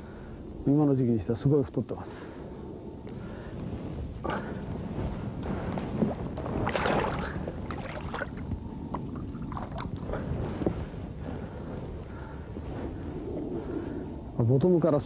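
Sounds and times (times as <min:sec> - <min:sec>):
wind rumble on microphone: 0:00.0 - 0:15.0
water splashing against boat: 0:05.4 - 0:10.2.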